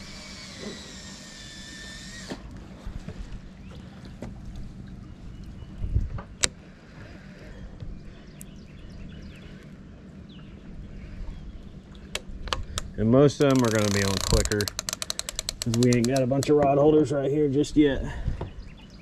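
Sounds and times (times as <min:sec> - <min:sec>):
fishing reel spool whirring: 0:00.0 - 0:02.6, 0:13.4 - 0:16.4.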